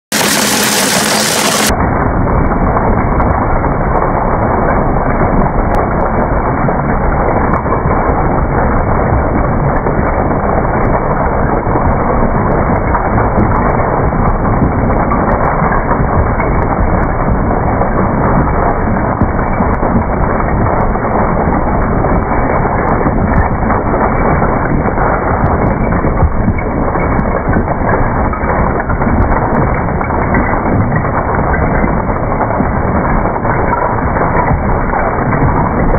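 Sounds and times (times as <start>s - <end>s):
stone breaking crunches: 0.1s - 1.8s, 2.4s - 35.9s
rock crusher grinding rumble: 0.1s - 35.9s.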